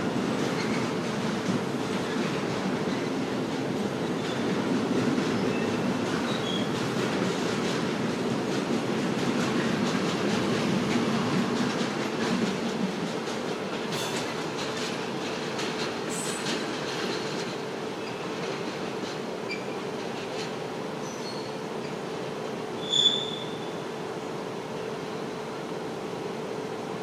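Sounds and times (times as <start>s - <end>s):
train wheels rumbling over rails: 0.0s - 27.0s
high wheel squeal: 22.8s - 23.7s.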